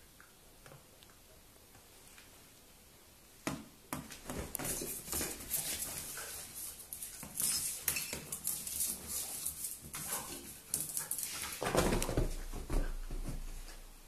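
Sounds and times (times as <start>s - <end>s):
dog claws skittering on tiles: 4.3s - 13.2s.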